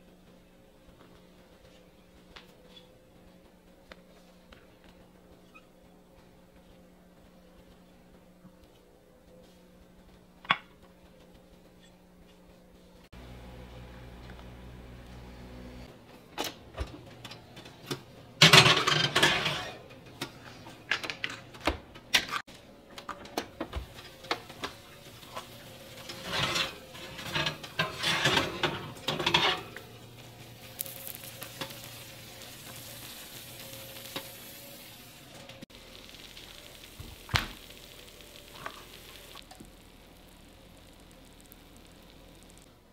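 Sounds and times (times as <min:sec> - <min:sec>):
light sizzle: 0:13.1 - 0:15.9, 0:23.6 - 0:42.8
utensil scraping a pan: 0:18.4 - 0:19.9, 0:25.9 - 0:30.0.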